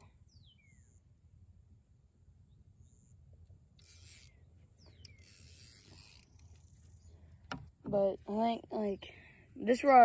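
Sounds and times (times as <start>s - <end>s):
fishing reel drag clicking: 3.6s - 7.1s.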